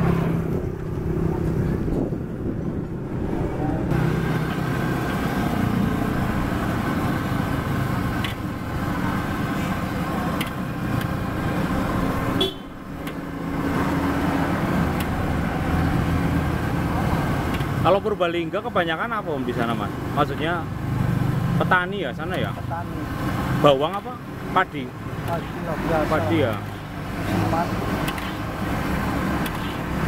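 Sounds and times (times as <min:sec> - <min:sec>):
street traffic: 0:00.0 - 0:30.0.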